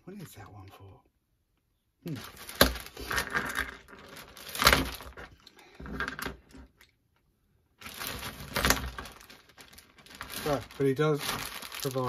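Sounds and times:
plastic bag crinkling: 2.1 - 5.4, 7.8 - 12.0.

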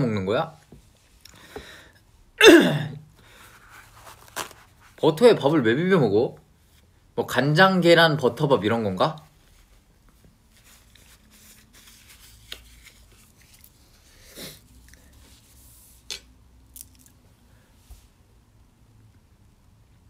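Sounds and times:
soft rustles: 3.3 - 5.1, 9.2 - 16.1.

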